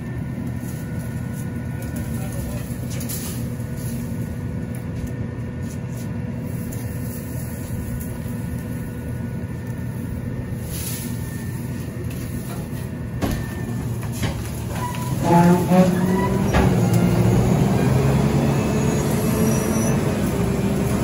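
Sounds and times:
garbage truck idling: 6.2 - 21.0.

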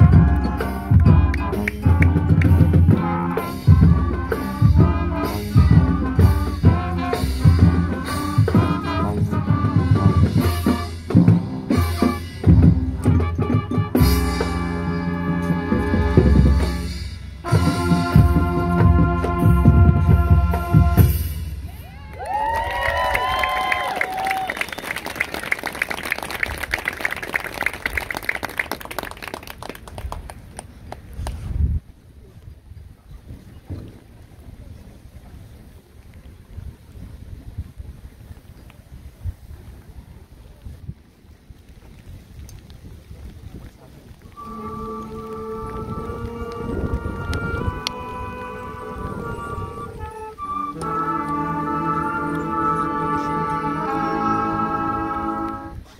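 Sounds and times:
brass chords: 0.0 - 21.7, 44.3 - 55.8
drumline and bass drum hits: 0.0 - 21.9
audience applause: 21.9 - 31.1
wind rumble on microphone: 29.6 - 55.9.

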